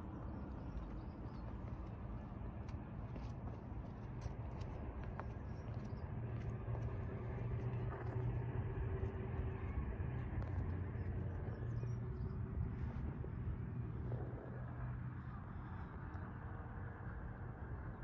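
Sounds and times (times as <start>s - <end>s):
low vehicle engine hum: 0.0s - 18.0s.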